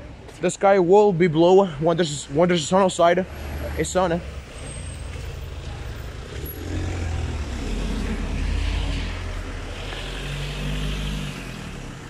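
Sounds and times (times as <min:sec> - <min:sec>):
road traffic rumble: 0:00.0 - 0:12.0.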